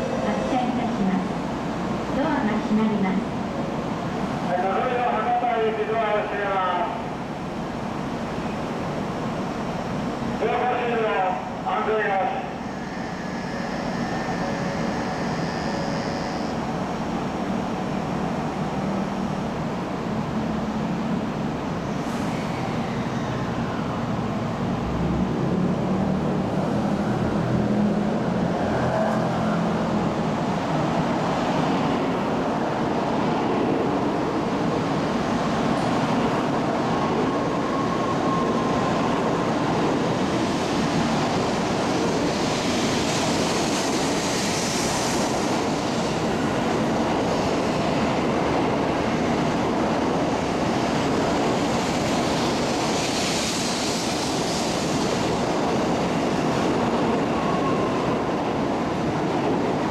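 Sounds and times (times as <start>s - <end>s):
train passing with rushing noise: 0.0s - 59.9s.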